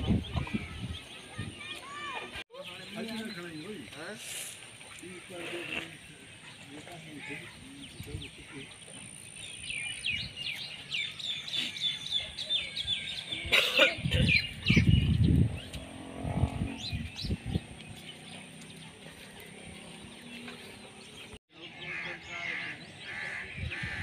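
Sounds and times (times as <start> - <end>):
small birds chirping: 0.0 - 24.0
loud low rumbles: 14.6 - 18.9.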